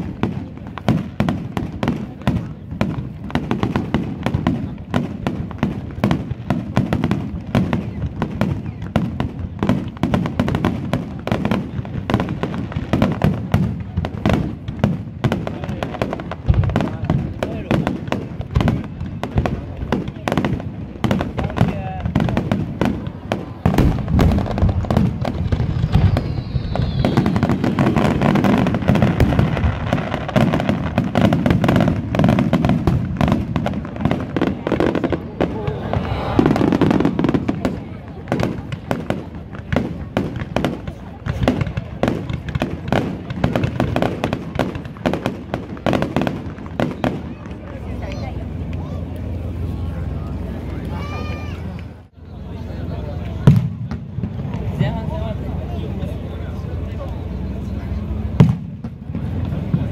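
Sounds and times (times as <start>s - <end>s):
continuous low rumble: 0.0s - 59.9s
fireworks bangs and crackles: 0.0s - 59.9s
faint falling whistle: 25.8s - 27.6s.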